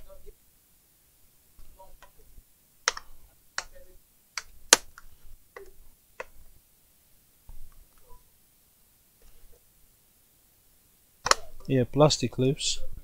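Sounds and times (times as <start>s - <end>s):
plastic clips snapping: 2.9s - 3.8s, 11.2s - 11.6s.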